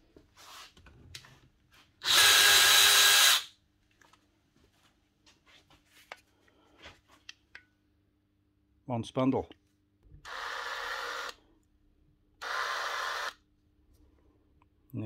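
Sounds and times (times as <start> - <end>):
cordless drill motor running: 2.0 - 3.5, 10.2 - 11.4, 12.4 - 13.4.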